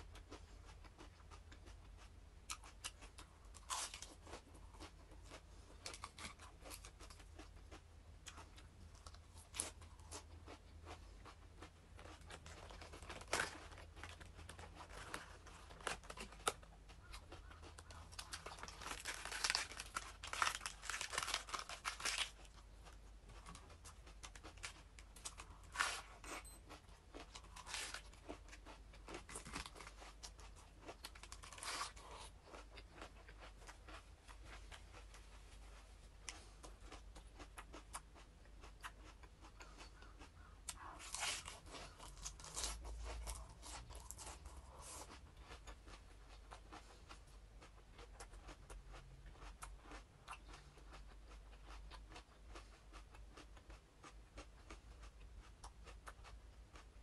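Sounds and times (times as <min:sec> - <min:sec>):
lettuce crunching when chewed: 0:00.0 - 0:57.0
lettuce leaves tearing: 0:18.2 - 0:22.4, 0:41.0 - 0:44.3.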